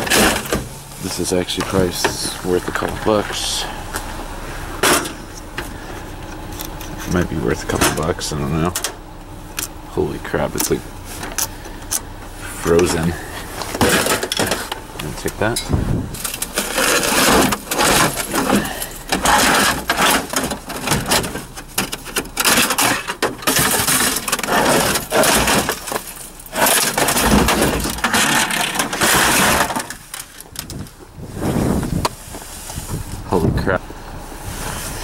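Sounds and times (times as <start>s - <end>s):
electronics clattering in metal dumpster: 0.0s - 3.7s, 4.8s - 9.0s, 12.7s - 31.0s.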